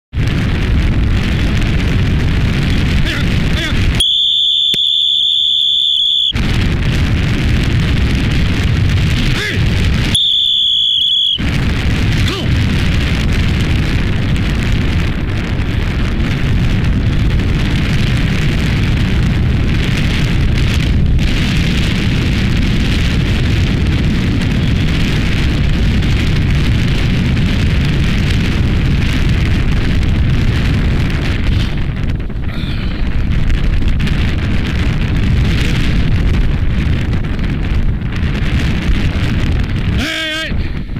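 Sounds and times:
wind buffeting microphone: 0:00.1 - 0:40.9
high-pitched whistle tone: 0:04.0 - 0:06.4, 0:10.2 - 0:11.4.

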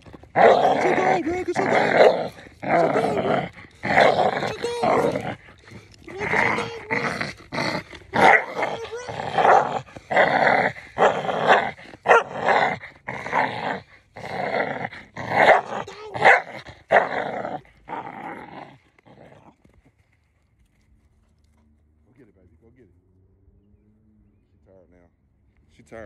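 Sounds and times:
dog growling: 0:00.0 - 0:19.8.

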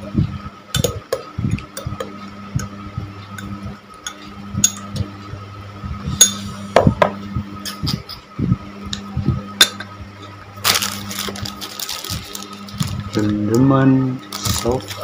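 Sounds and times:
steady low hum: 0:00.0 - 0:15.0
spoon clinking against a glass: 0:03.4 - 0:05.0
plastic packet rustling: 0:10.6 - 0:13.5, 0:14.2 - 0:15.0.

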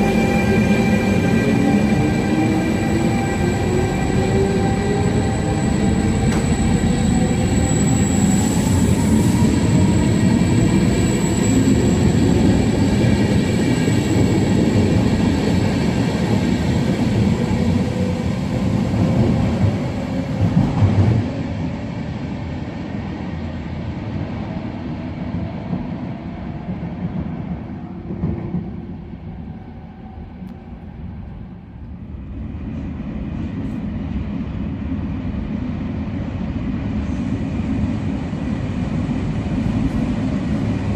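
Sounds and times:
train wheels rumbling over rails: 0:00.0 - 0:30.8.

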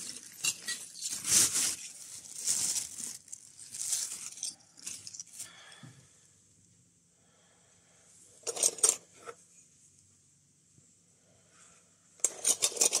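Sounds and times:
metal tubes clinking: 0:00.0 - 0:02.0.

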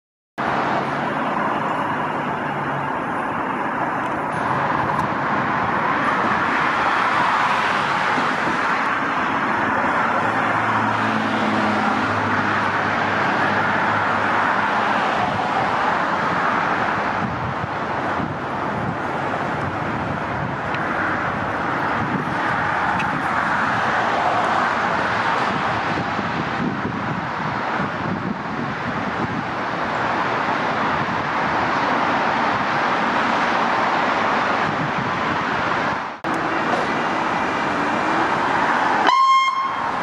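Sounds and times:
road traffic noise: 0:00.4 - 0:40.0.

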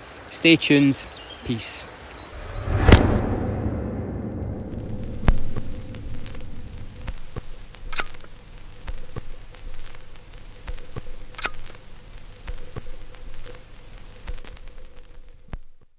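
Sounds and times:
faint steady hum: 0:04.2 - 0:15.9
sharp clicks: 0:11.0 - 0:11.8.

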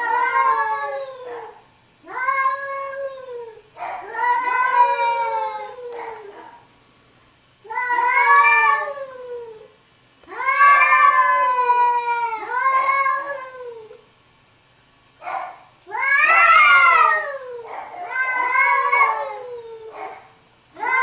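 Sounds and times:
cat meowing: 0:02.1 - 0:06.3, 0:07.7 - 0:09.6, 0:10.3 - 0:14.0, 0:15.9 - 0:20.1, 0:20.8 - 0:21.0.

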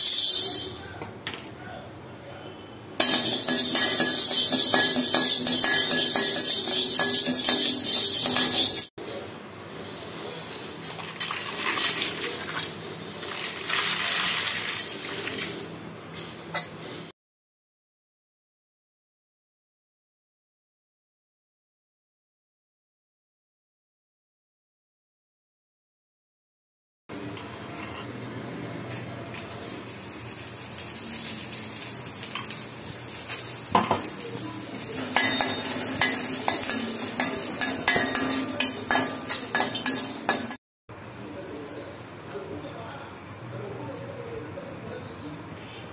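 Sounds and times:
peppercorns rattling into steel bowl: 0:00.0 - 0:00.8, 0:03.0 - 0:08.9, 0:11.0 - 0:15.6, 0:34.8 - 0:40.6
metal spatula scraping pan: 0:03.0 - 0:08.9, 0:27.4 - 0:28.2, 0:35.0 - 0:40.6.

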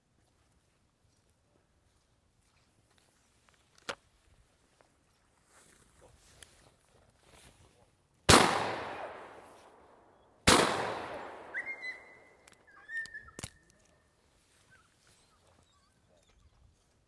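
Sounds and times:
shotgun shot: 0:08.3 - 0:09.8, 0:10.4 - 0:12.0
high whistled note: 0:11.5 - 0:13.4.

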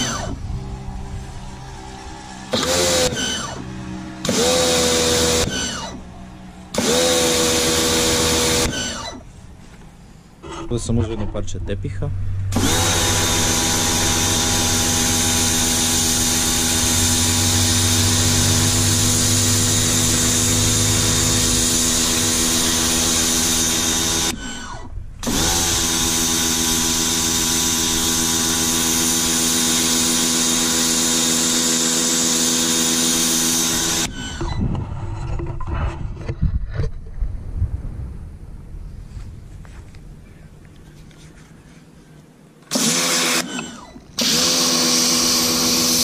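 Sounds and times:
pressure washer motor humming: 0:00.0 - 0:09.9, 0:12.2 - 0:34.6, 0:42.7 - 0:46.0.

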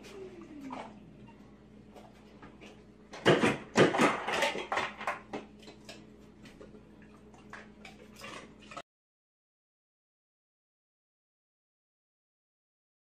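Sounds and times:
faint steady hum: 0:00.0 - 0:08.8
ice dispenser clattering: 0:03.2 - 0:05.5.

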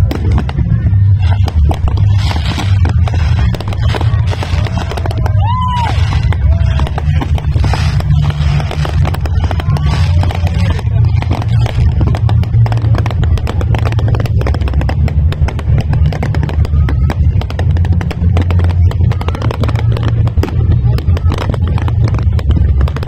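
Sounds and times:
fireworks bangs and crackles: 0:00.0 - 0:23.0
low rumble: 0:00.0 - 0:23.0.

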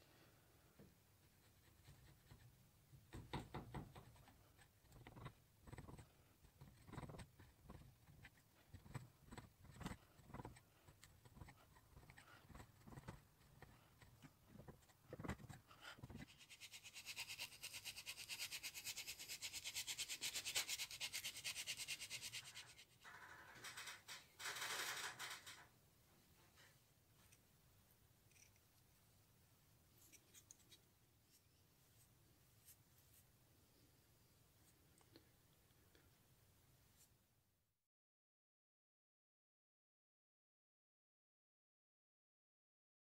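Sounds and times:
paintbrush scrubbing wood: 0:09.3 - 0:22.9.

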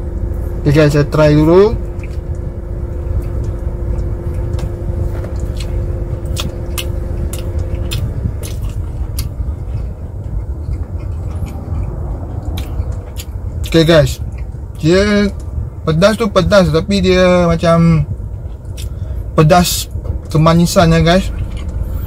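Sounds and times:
air conditioning hum: 0:00.0 - 0:22.0
car cabin engine rumble: 0:00.0 - 0:22.0
person chewing food: 0:01.8 - 0:14.8, 0:18.3 - 0:19.3, 0:21.2 - 0:22.0.

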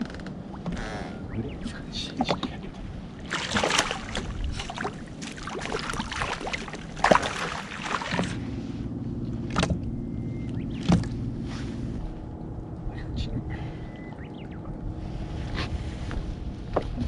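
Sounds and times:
low motor hum: 0:00.0 - 0:17.0
fish splashing in net: 0:03.3 - 0:08.4.

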